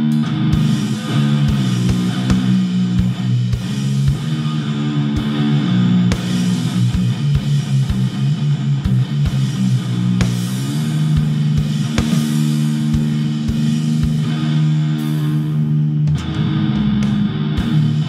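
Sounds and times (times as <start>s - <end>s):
distorted electric guitar chords: 0.0s - 18.0s
kick drum hits: 10.2s - 14.3s.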